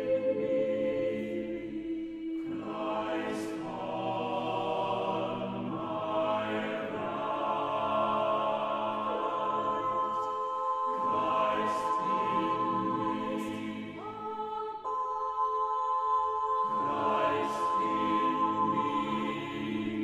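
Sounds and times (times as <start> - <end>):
slow music of held chords: 0.0 - 20.0.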